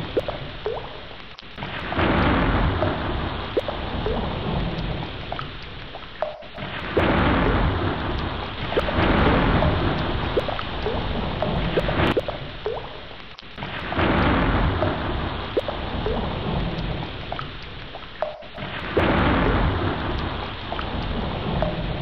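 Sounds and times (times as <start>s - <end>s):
heavy rain: 0.0s - 22.0s
thunder rumbling: 1.6s - 5.4s, 6.3s - 12.6s, 13.6s - 17.4s, 18.3s - 22.0s.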